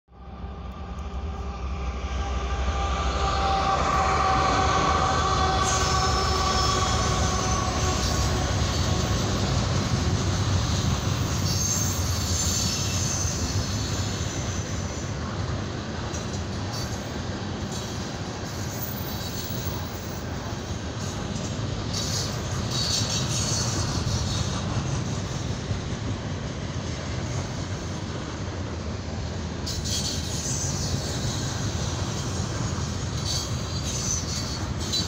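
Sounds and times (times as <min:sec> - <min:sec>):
train wheels rumbling on rail: 0:00.1 - 0:35.0
high wheel squeal: 0:02.0 - 0:15.5, 0:16.1 - 0:25.6, 0:29.6 - 0:35.0.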